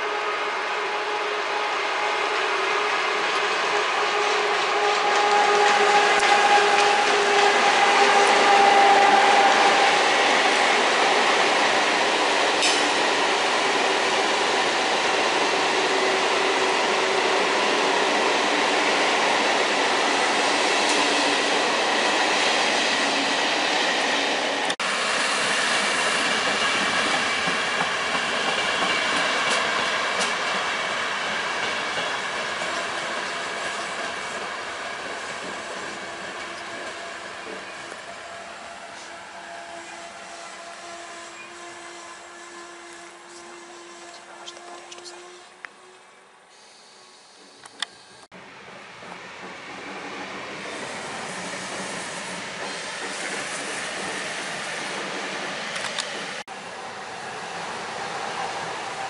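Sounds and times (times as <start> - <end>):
train wheels on rails: 0.1 - 46.0, 47.0 - 59.0.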